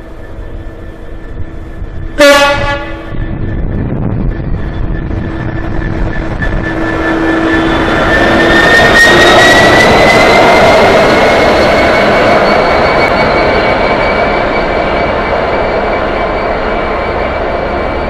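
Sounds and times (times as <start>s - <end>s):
diesel locomotive passing: 0.0s - 18.0s
high whine: 0.0s - 18.0s.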